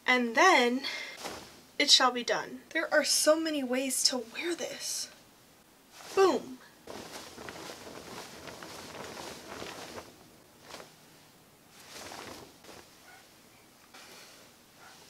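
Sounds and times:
skirt swishing: 0:01.2 - 0:01.7, 0:05.9 - 0:13.3.

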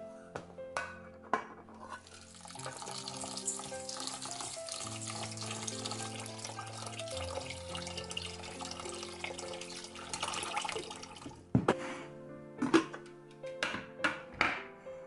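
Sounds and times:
background music: 0:00.0 - 0:15.0
water and grains swishing: 0:02.0 - 0:11.3.

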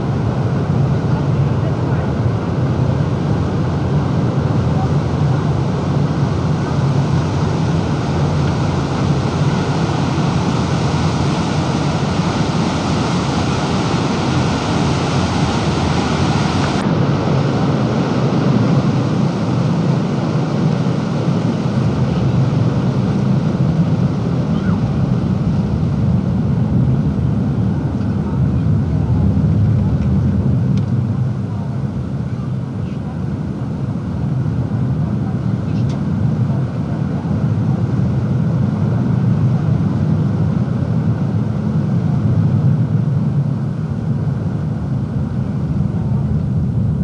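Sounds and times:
water rushing along hull: 0:00.0 - 0:38.2
low boat drone: 0:00.0 - 0:47.0.

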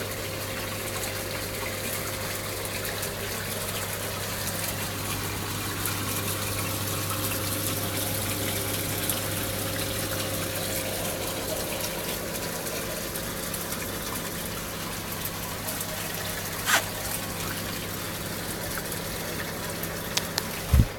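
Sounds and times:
electric pump hum: 0:00.0 - 0:20.9.

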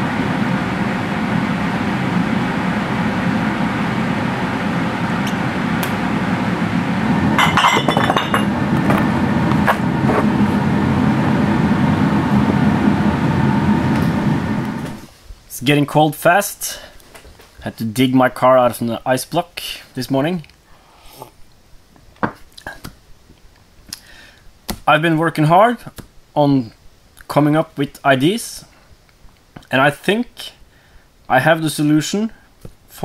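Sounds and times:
loud rumbling noise: 0:00.0 - 0:15.1
glass clinking: 0:07.4 - 0:08.6.

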